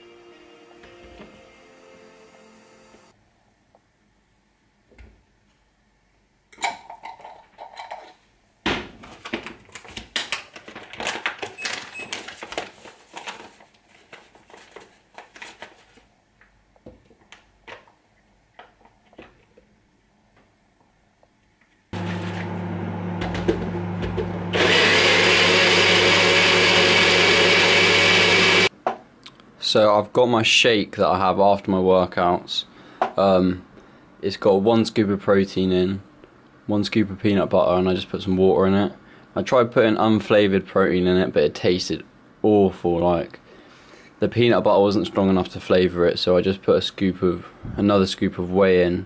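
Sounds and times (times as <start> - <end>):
blender motor: 22.0 - 28.7.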